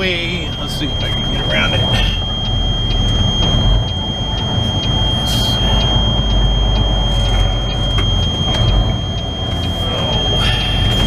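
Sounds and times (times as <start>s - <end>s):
diesel truck engine running: 0.0s - 11.0s
steady high-pitched tone: 0.0s - 11.0s.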